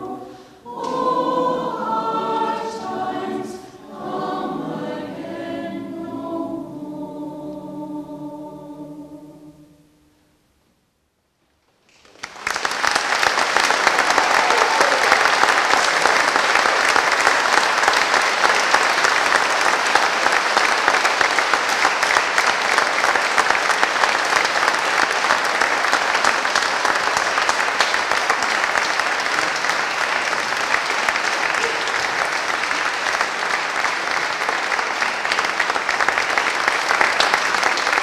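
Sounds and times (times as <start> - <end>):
audience applauding: 11.9 - 38.0.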